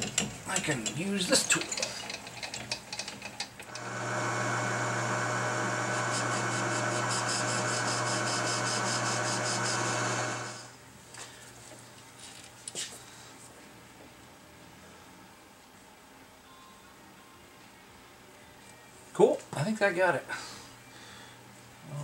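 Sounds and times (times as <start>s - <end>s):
metal lathe running: 3.7s - 10.7s.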